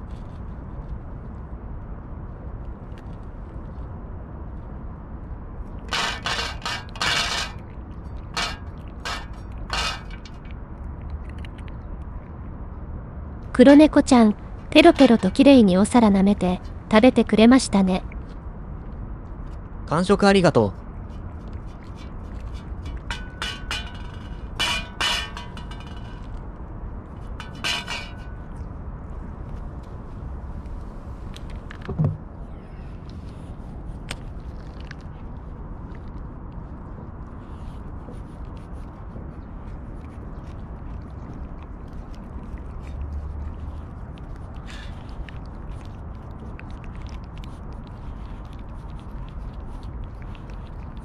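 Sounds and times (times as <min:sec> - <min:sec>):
cat crunching food: 0:05.6 - 0:12.3, 0:20.6 - 0:32.0, 0:33.1 - 0:51.0
metal dish clinking on stone: 0:05.9 - 0:10.5, 0:22.4 - 0:26.4, 0:27.4 - 0:28.6.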